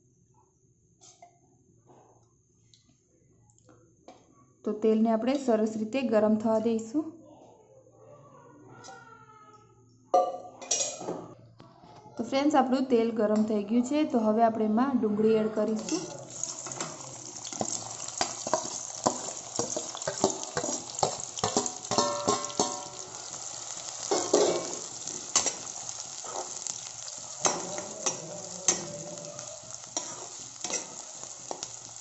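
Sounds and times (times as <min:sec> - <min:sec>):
onions sizzling in hot oil: 0:15.7 - 0:32.0
spoon scraping and knocking pan: 0:15.7 - 0:32.0.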